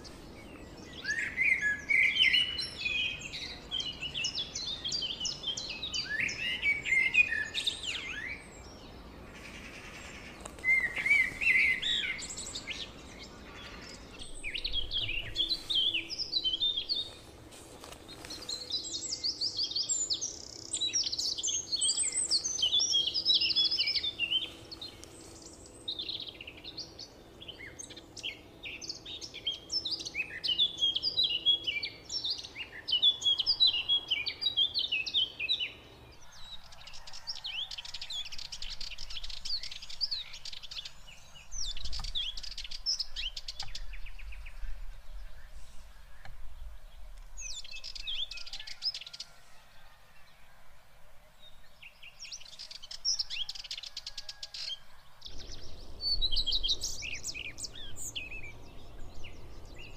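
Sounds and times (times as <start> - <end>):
songbirds chirping and trilling: 0.0 - 59.9.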